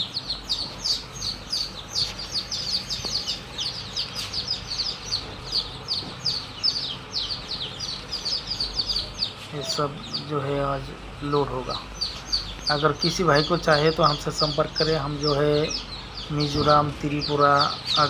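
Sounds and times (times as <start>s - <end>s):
chicks peeping: 0.0s - 18.0s.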